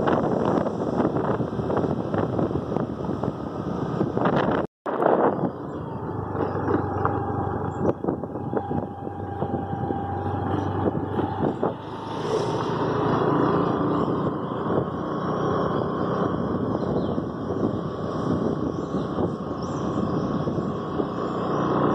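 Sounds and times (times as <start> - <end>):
scooter engine running: 5.3 - 21.9.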